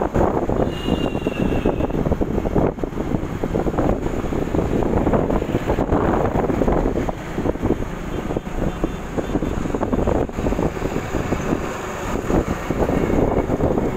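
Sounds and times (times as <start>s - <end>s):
moving vehicle rumble: 0.0s - 13.9s
wind buffeting microphone: 0.0s - 13.9s.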